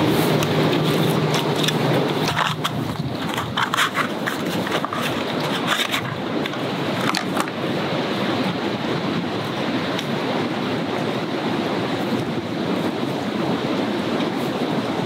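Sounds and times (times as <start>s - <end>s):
outdoor noise: 0.0s - 15.0s
matchbox sliding and clicking: 0.4s - 7.5s.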